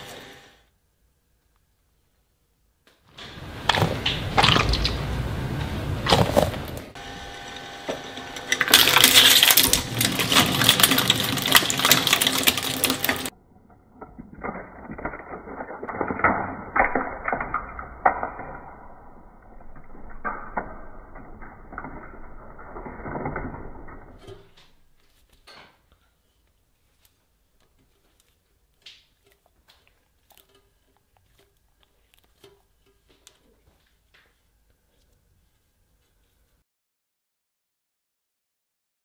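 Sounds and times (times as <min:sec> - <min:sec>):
metal shredder crunching: 0:03.2 - 0:25.0
muffled crackling clicks and pops: 0:08.5 - 0:18.8.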